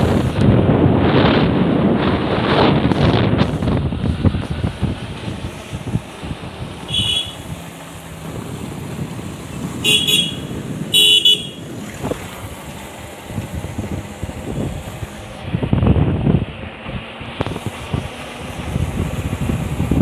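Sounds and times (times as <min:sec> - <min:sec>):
motorcycle engine running: 0:00.0 - 0:20.0
wind rush on microphone: 0:00.0 - 0:20.0
vehicle horn toots: 0:06.8 - 0:07.6, 0:09.8 - 0:11.7.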